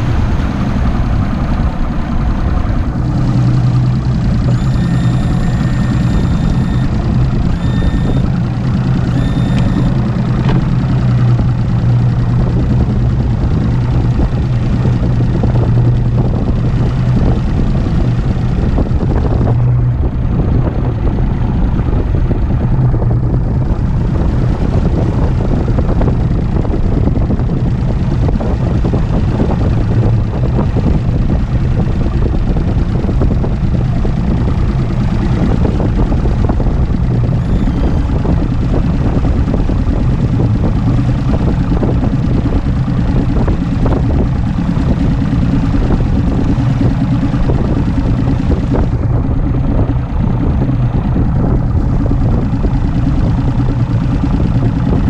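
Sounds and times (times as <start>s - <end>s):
outboard motor running: 0.0s - 55.0s
short beeps: 4.4s - 8.4s, 9.0s - 10.1s, 37.4s - 38.2s.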